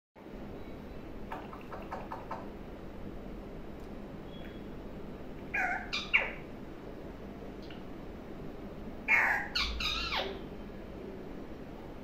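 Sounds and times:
parakeet harsh calls: 0:05.5 - 0:06.5, 0:09.0 - 0:10.4.

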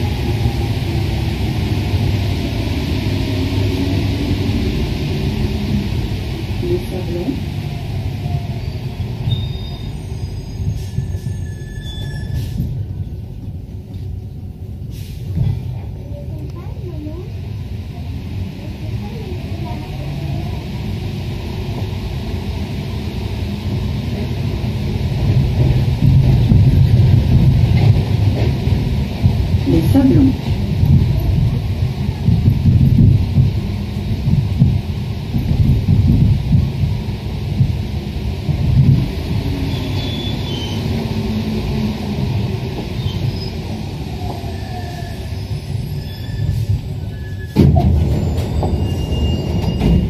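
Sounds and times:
train rumbling through tunnel: 0:00.0 - 0:50.0
high wheel squeals: 0:08.6 - 0:12.8, 0:39.6 - 0:40.9, 0:43.0 - 0:50.0.

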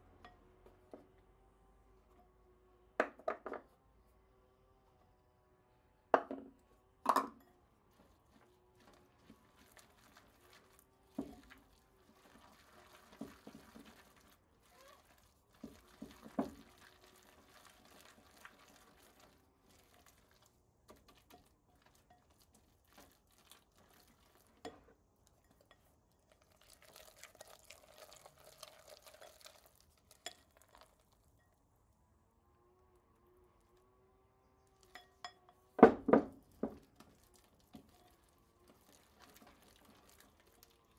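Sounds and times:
utensil stirring and scraping batter: 0:07.8 - 0:31.4, 0:34.7 - 0:40.9.

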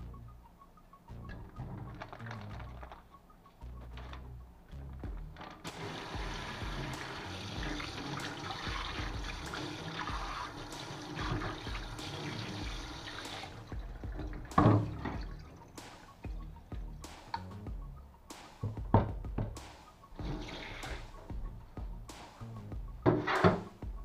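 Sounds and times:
tap water splashing in sink: 0:05.8 - 0:15.4.

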